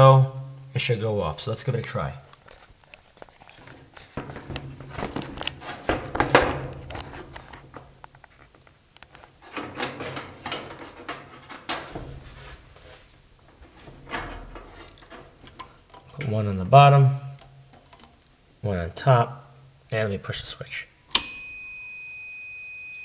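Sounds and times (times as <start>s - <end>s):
handling clicks knocks and rustles: 2.3s - 16.4s, 17.4s - 18.3s.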